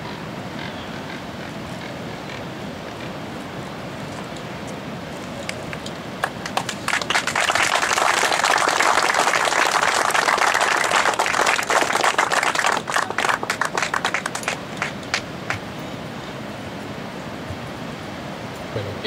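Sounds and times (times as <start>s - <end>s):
crowd applauding: 6.2s - 15.7s.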